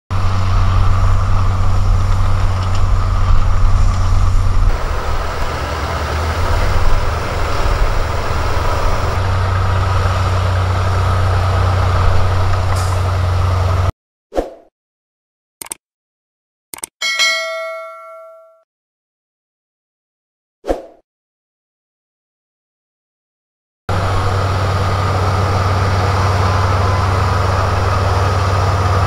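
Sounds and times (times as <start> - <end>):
bulldozer engines rumbling: 0.1 - 13.9, 23.9 - 29.0.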